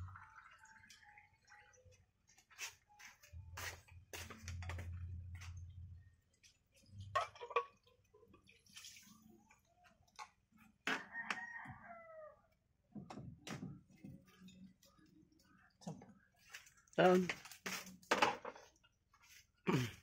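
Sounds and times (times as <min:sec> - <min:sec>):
broth pouring and splashing: 0:06.3 - 0:09.8
rooster crowing: 0:10.9 - 0:12.4.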